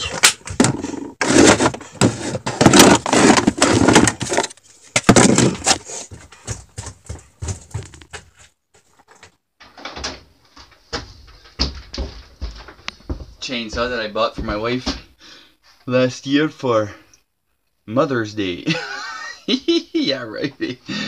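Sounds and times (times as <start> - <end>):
footsteps on wooden floor: 5.2 - 8.9, 10.6 - 15.2.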